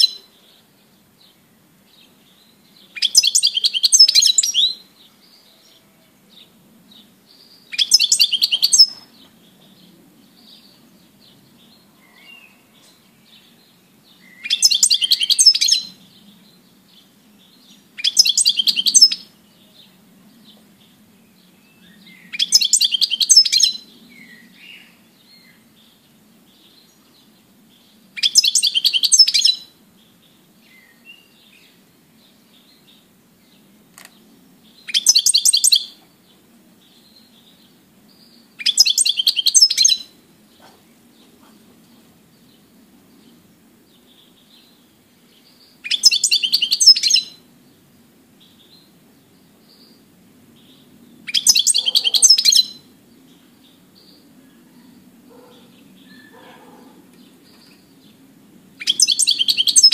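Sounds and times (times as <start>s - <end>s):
bird twittering: 0.0s - 0.6s, 2.0s - 26.0s, 27.8s - 29.7s, 34.0s - 36.0s, 36.8s - 42.1s, 45.4s - 47.4s, 49.6s - 58.1s, 58.8s - 59.9s
faint bird chirps: 0.0s - 58.2s, 58.8s - 59.9s.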